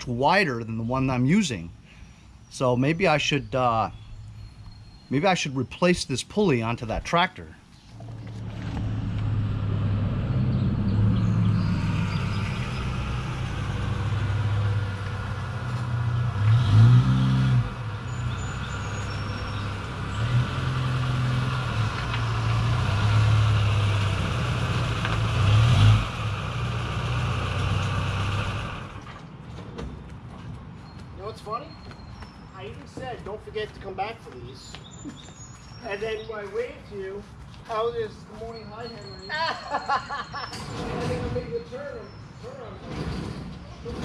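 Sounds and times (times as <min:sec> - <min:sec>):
truck engine running: 0:08.0 - 0:16.6
engine revving: 0:08.0 - 0:29.0.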